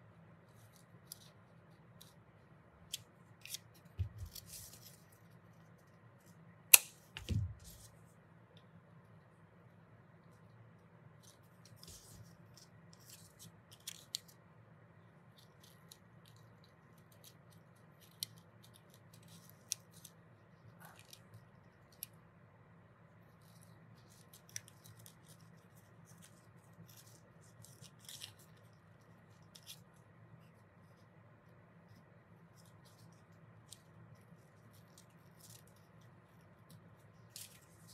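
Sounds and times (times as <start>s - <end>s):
paper rustling and crinkling: 3.4s - 5.9s, 7.2s - 8.1s.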